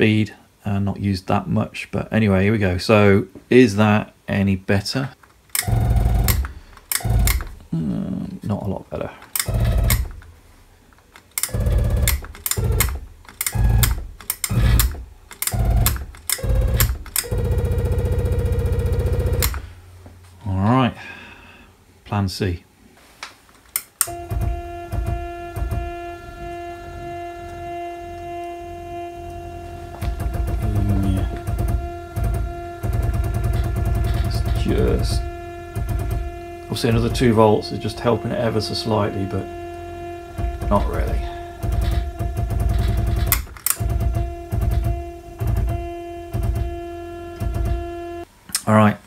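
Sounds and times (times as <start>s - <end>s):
sharp clicks: 5.2s - 7.7s, 9.2s - 10.3s, 10.9s - 19.7s, 23.6s - 26.7s, 29.3s - 48.7s
stepper motor whining: 5.6s - 8.0s, 9.3s - 10.4s, 11.2s - 19.8s, 24.0s - 48.3s.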